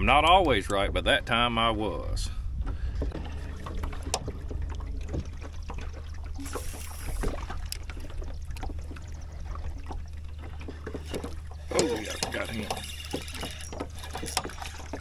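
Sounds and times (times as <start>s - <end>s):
low rumble: 0.0s - 10.8s
waves lapping against boat hull: 0.0s - 15.0s.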